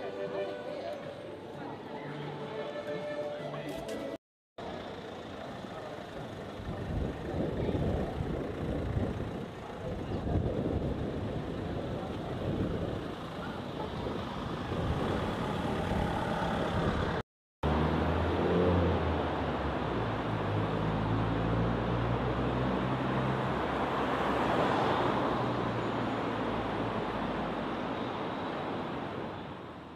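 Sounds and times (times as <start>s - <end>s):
cars driving by: 13.0s - 29.7s.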